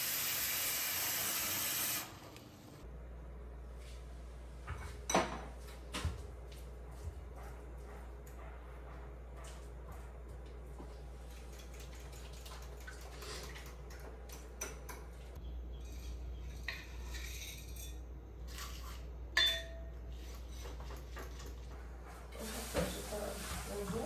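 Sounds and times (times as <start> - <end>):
dishes and cutlery clinking: 4.7 - 5.6, 11.3 - 23.1.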